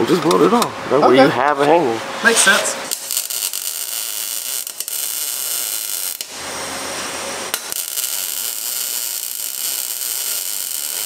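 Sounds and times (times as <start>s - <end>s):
welder arc crackling: 2.8s - 6.6s, 7.4s - 11.0s.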